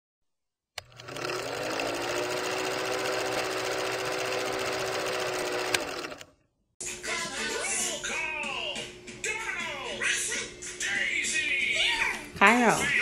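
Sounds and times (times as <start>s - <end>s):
film projector clatter: 0.8s - 6.3s.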